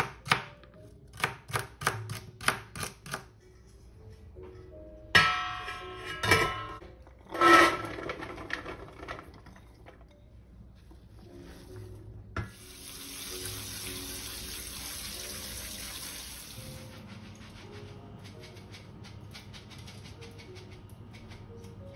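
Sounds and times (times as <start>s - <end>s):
metal pot clanking and ringing: 5.2s - 9.9s
things clattering into metal pot: 5.2s - 10.2s
water running into sink: 12.4s - 17.0s.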